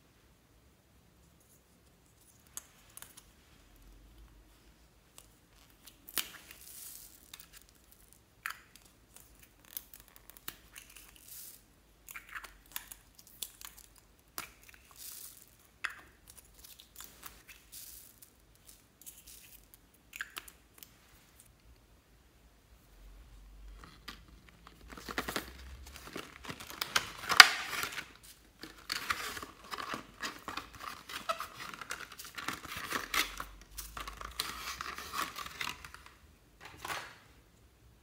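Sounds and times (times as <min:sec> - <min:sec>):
foam beads pouring and rattling: 0:06.4 - 0:07.6.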